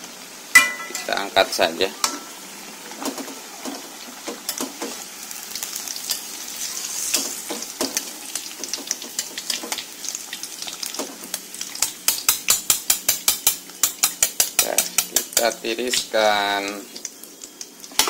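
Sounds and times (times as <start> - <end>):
food sizzling in hot oil: 0.0 - 18.0
metal strainer tapping wok: 0.6 - 1.1.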